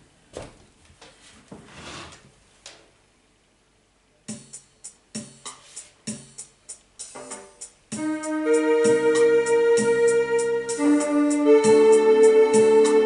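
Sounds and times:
electronic keyboard notes: 7.0 - 13.0.

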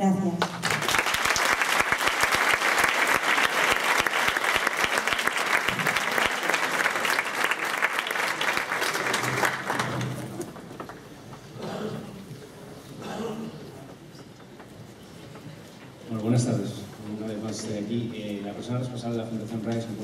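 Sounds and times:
audience applauding: 0.4 - 11.0.

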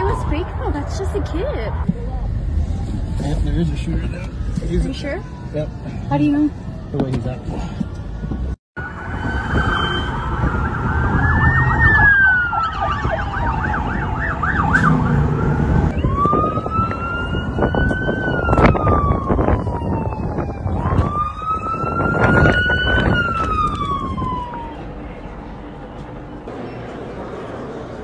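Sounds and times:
police sirens wailing: 0.0 - 3.3, 8.8 - 26.4
car rumble: 0.0 - 28.0.

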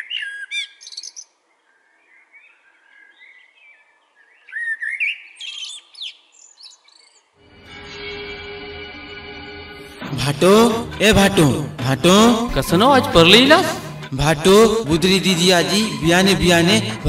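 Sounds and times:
songbirds singing: 0.0 - 7.4
droning music: 7.4 - 17.0.

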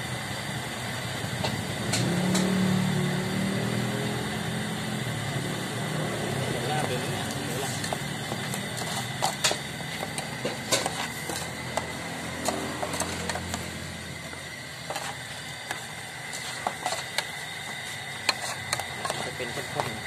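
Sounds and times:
spoon stirring in saucepan: 6.6 - 20.0.

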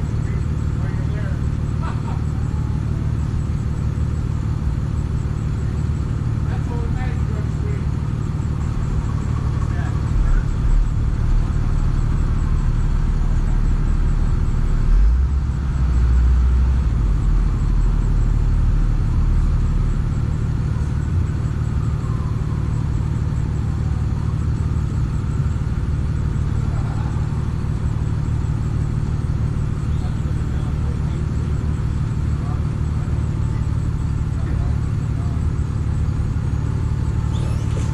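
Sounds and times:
truck engine rumbling: 0.0 - 37.9.

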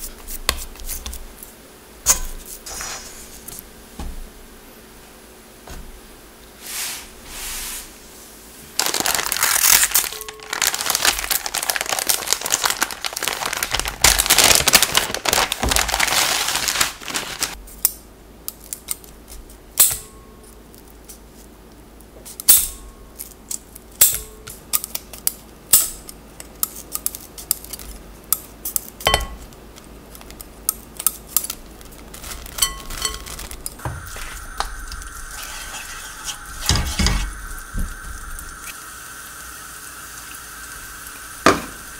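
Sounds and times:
crinkling and rustling: 8.6 - 17.6, 31.2 - 37.2
garlic sizzling in oil: 32.6 - 41.9.

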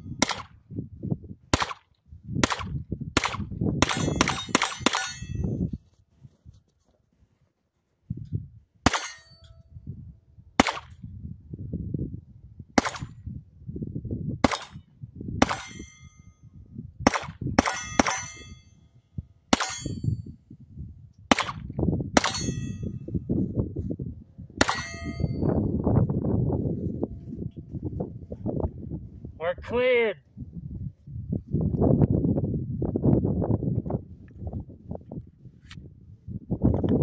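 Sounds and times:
pistol shots with metallic ring: 0.2 - 0.5, 2.4 - 5.5, 8.9 - 9.6, 10.6 - 10.9, 12.8 - 13.2, 14.4 - 16.3, 17.1 - 18.8, 19.5 - 20.3, 21.3 - 21.6, 22.2 - 23.0, 24.6 - 25.6.

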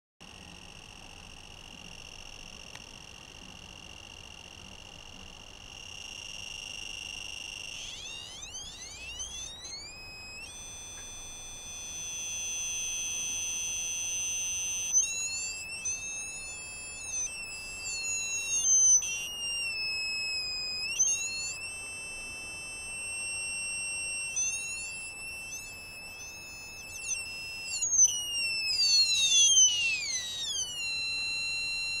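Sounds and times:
high electronic buzzer tones: 0.2 - 32.0.

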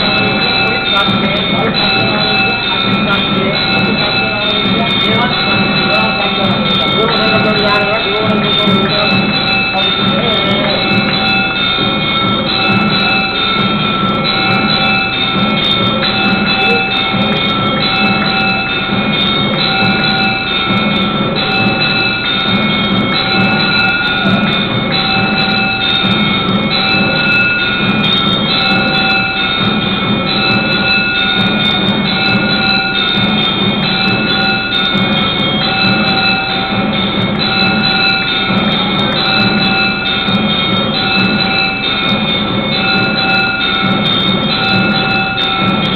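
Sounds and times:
bells ringing: 0.0 - 45.9.

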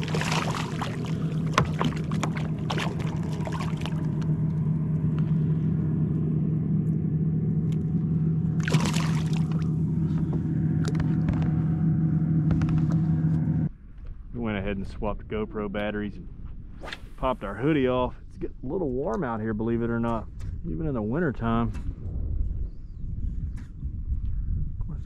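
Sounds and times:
splashing and handling: 0.0 - 4.4, 8.6 - 11.4
motor humming steadily: 0.0 - 13.7.

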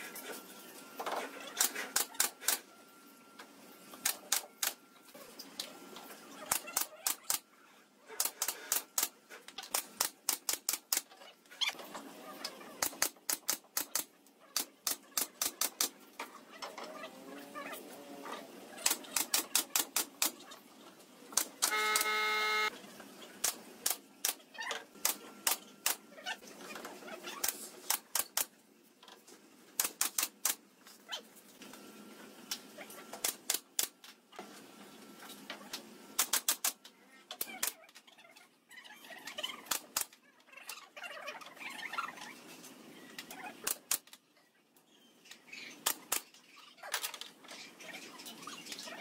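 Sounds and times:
brief steady tone: 21.6 - 22.7.

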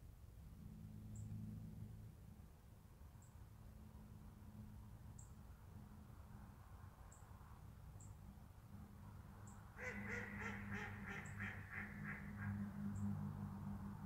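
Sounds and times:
duck quacking: 9.8 - 12.6.

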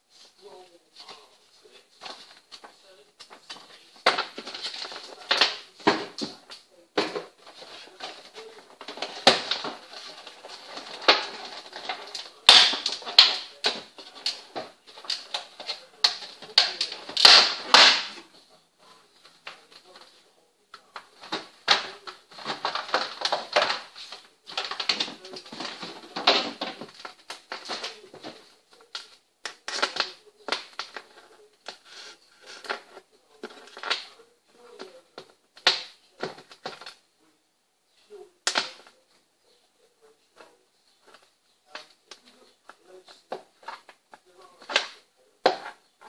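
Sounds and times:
plastic packaging crackling: 7.3 - 18.1, 20.8 - 34.9.

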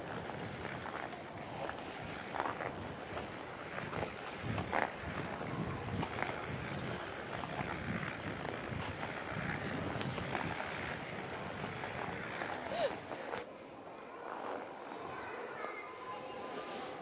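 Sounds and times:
skate blades scraping ice: 0.0 - 13.5.

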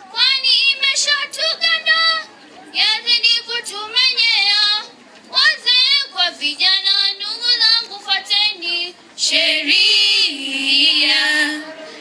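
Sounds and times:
girl singing into a microphone: 2.8 - 12.0.

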